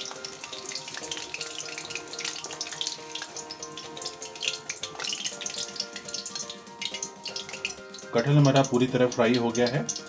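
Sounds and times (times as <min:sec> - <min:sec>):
hot oil sizzling: 0:00.0 - 0:10.0
soft background music: 0:00.0 - 0:10.0.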